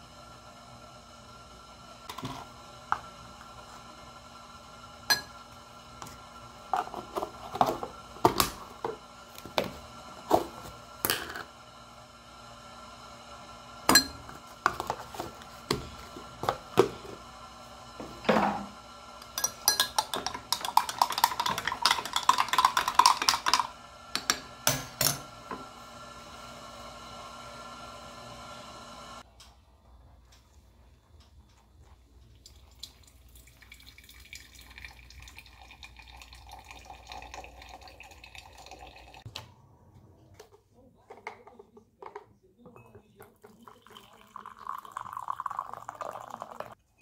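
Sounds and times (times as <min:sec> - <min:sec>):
spoon stirring and clinking in glass: 0:05.1 - 0:05.4, 0:19.2 - 0:24.4, 0:42.7 - 0:44.7
spoon tapping glass and tubs: 0:13.9 - 0:14.9, 0:19.2 - 0:25.2, 0:42.1 - 0:43.6.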